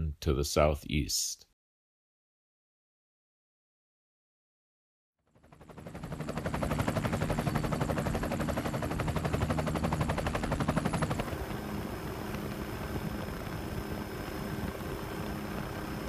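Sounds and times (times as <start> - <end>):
helicopter rotor chop: 5.3 - 16.0
steady aircraft hum: 5.3 - 16.0
faint high whine: 6.2 - 16.0.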